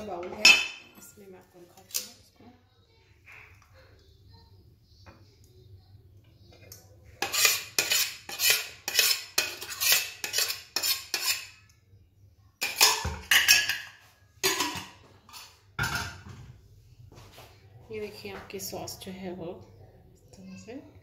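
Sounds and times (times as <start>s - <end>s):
spoon scraping blender jar: 7.2s - 11.5s.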